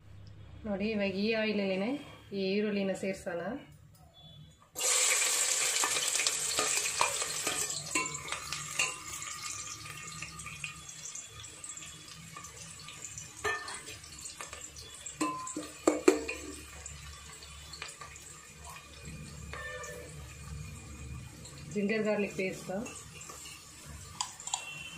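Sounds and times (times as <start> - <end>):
onions sizzling in hot oil: 4.8 - 24.9
spoon scraping and knocking pot: 5.8 - 9.4, 15.2 - 16.6, 22.8 - 24.9.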